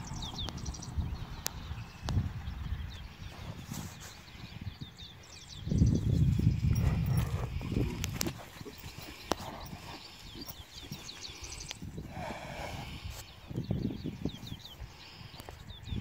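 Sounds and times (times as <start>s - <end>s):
birds chirping: 0.0s - 16.0s
horse hooves on grass: 5.3s - 13.3s.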